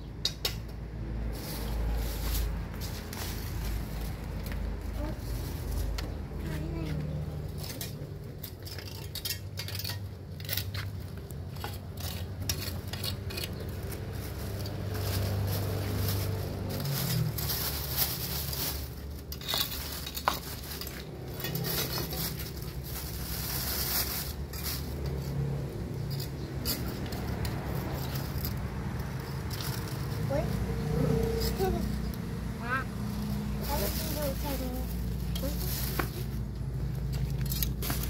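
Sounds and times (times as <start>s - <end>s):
leaves rustling: 1.1s - 9.0s, 12.7s - 38.0s
plastic bag rustling: 1.2s - 9.2s, 10.0s - 32.0s, 33.0s - 38.0s
tongs scraping concrete gutter: 7.2s - 32.9s, 33.6s - 38.0s.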